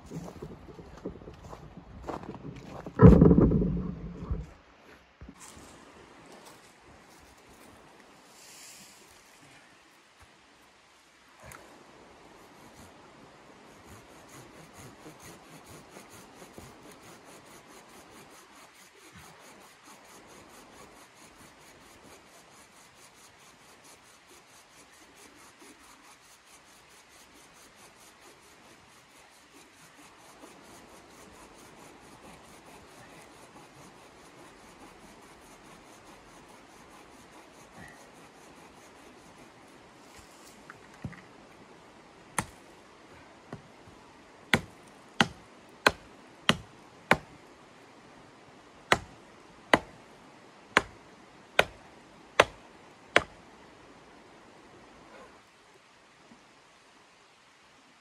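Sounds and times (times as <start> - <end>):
rubbing and scraping: 0.0 - 4.6, 14.0 - 40.7
sharp wooden knocks of chopping: 44.5 - 47.3, 48.9 - 49.9, 50.8 - 51.0, 52.4 - 52.6, 53.2 - 53.4.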